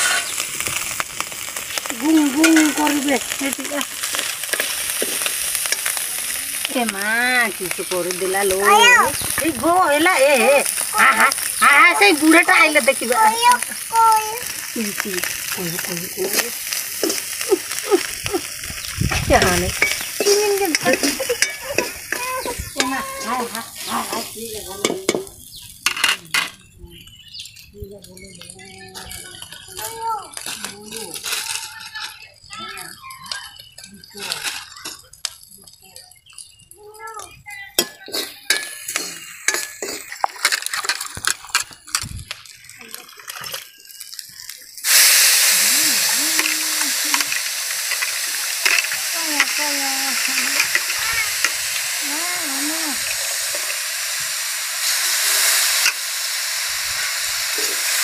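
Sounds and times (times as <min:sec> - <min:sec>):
hands squeezing and stirring greens: 0:00.0 - 0:25.3, 0:28.2 - 0:56.0
food sizzling in oil: 0:00.0 - 0:58.0
spoon scraping and clinking pan: 0:19.3 - 0:25.3, 0:37.8 - 0:41.7.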